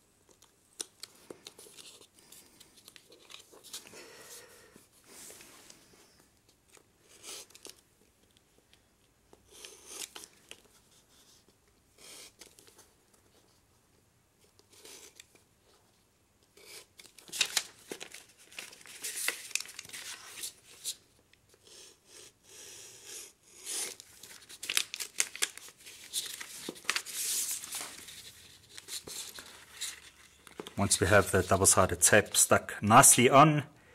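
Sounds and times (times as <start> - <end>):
paper rustling: 1.0 - 3.9, 16.6 - 21.1, 23.8 - 32.5.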